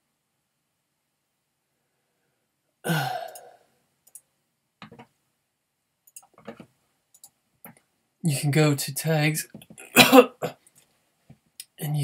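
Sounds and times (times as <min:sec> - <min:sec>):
breathing: 0:01.7 - 0:03.8
man sighing: 0:02.8 - 0:03.7
faint clicks: 0:03.3 - 0:05.1, 0:06.0 - 0:07.9.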